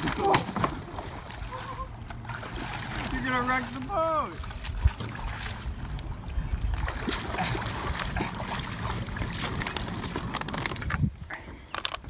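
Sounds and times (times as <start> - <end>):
water splashing and sloshing: 0.0 - 12.0
wind rumble on microphone: 4.4 - 12.0.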